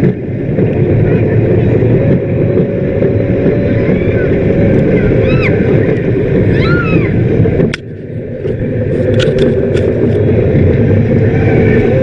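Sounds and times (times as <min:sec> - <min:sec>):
roller coaster train rumbling: 0:00.0 - 0:12.0
wind buffeting microphone: 0:00.0 - 0:12.0.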